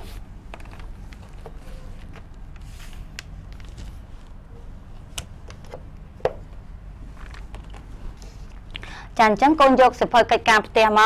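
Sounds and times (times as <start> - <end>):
low room hum: 0.0 - 11.0
paper rustling: 0.6 - 4.4.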